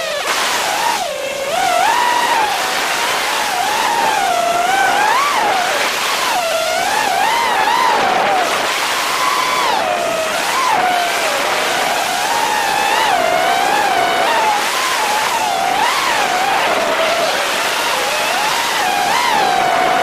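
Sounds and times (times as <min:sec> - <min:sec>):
drone motors whining: 0:00.0 - 0:20.0
propeller wash hiss: 0:00.0 - 0:20.0.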